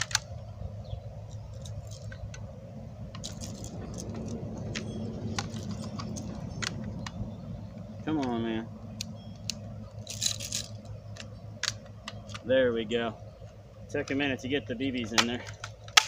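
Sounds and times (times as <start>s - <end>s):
low rumble: 0.0s - 14.0s
small clicks and rattles: 1.3s - 2.4s, 3.1s - 7.2s, 9.0s - 12.5s.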